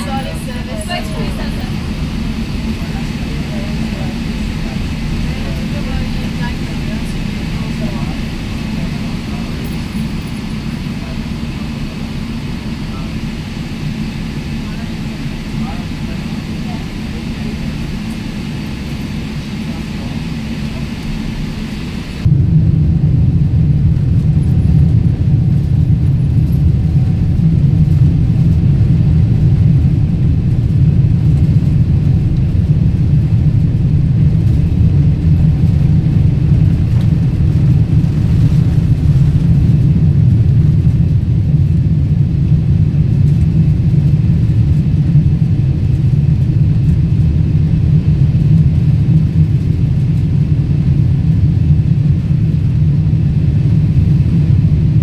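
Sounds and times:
jet engines deep rumble: 0.0 - 55.0.

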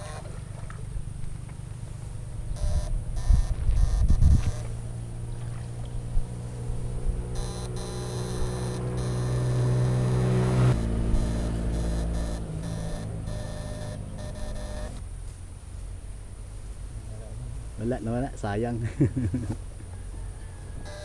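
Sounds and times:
pitched machine hum: 0.0 - 0.5, 2.3 - 15.0.

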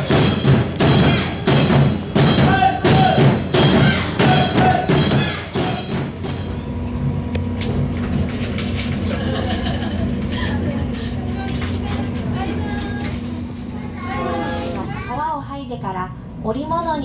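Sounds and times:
rhythmic percussion music: 0.0 - 6.7
train humming at platform: 0.0 - 17.0.

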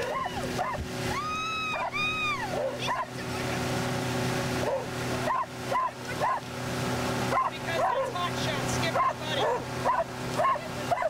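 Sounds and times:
dog whining and yipping: 0.0 - 3.0, 4.7 - 6.4
outboard motor drone: 0.0 - 11.0
water from boat wake: 0.0 - 11.0
wind: 0.0 - 11.0.

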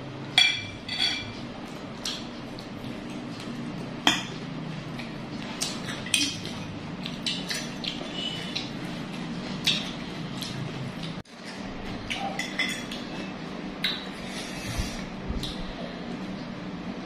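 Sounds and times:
cutlery clinking on ceramic plates: 0.4 - 1.4, 12.1 - 13.0.

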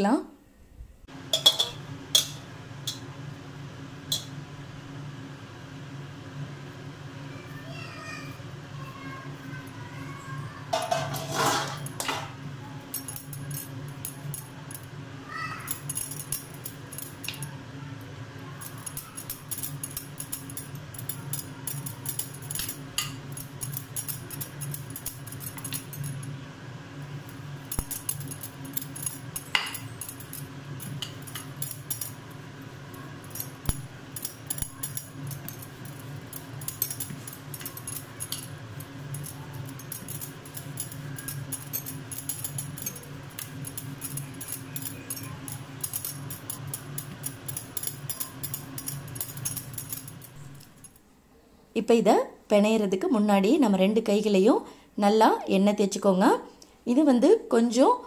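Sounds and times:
steady low hum: 8.4 - 51.8.

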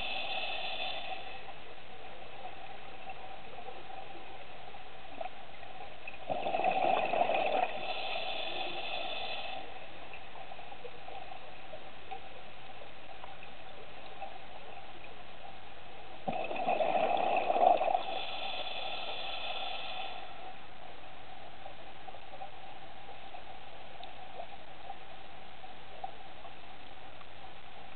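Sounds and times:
underwater watery hiss: 0.0 - 1.7, 6.1 - 11.7, 16.3 - 20.6
bubbling: 6.0 - 9.6, 16.2 - 19.7.

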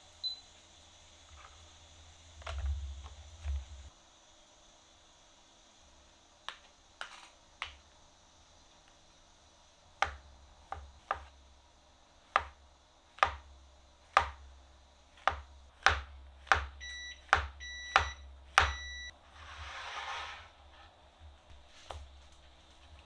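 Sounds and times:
electronic device beeps: 16.8 - 19.1.

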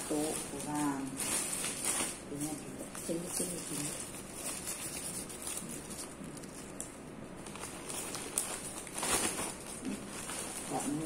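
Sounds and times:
plastic bags rustling and crinkling: 0.0 - 11.0.

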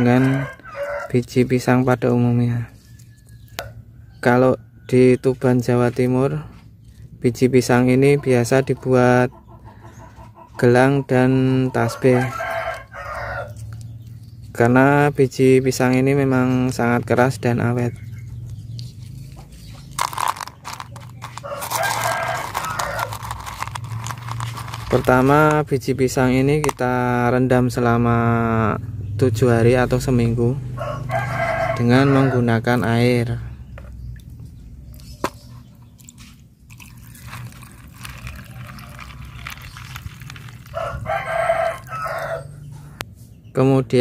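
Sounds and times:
rooster crowing: 0.0 - 1.2, 11.8 - 13.6, 21.3 - 23.3, 30.8 - 32.6, 40.6 - 42.8.

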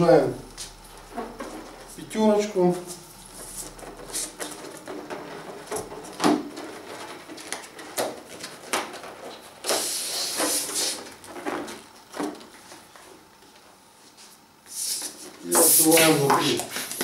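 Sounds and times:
balloon rubbing hiss: 9.6 - 11.1, 14.6 - 17.0.

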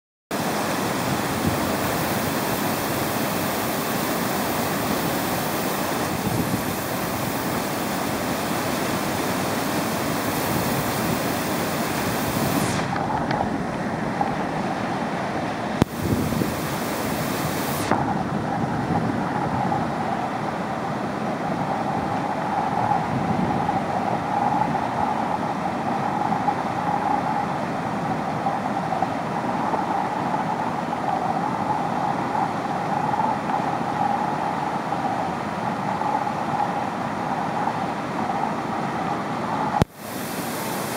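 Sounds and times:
whitewater rapids rushing: 0.4 - 18.6, 37.8 - 40.9.

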